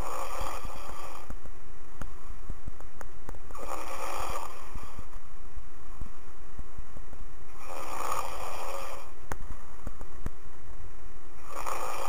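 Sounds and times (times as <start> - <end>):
person snoring: 0.0 - 1.3, 3.5 - 5.1, 7.5 - 9.2, 11.4 - 12.0.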